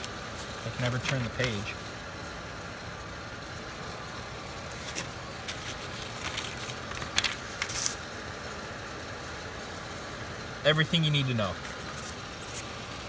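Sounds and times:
paper booklet rustling: 0.0 - 1.8, 4.7 - 8.1, 11.6 - 12.8
car engine idling: 0.0 - 13.0.

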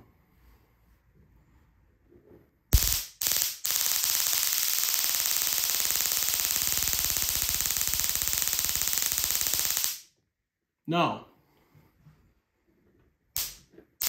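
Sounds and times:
electric arc crackling buzz: 2.8 - 10.1, 13.4 - 13.6.

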